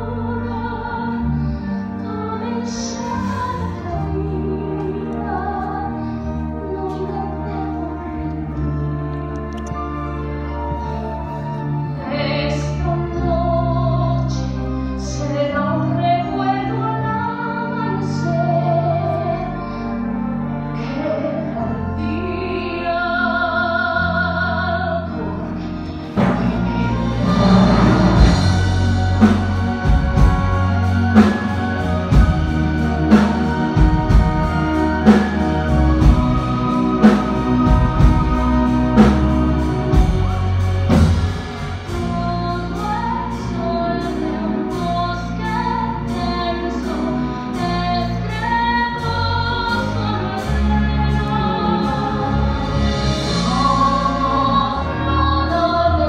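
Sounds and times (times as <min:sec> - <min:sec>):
woman singing ballad with orchestra: 0:00.0 - 0:56.0
drum and cymbal accents: 0:26.1 - 0:42.2.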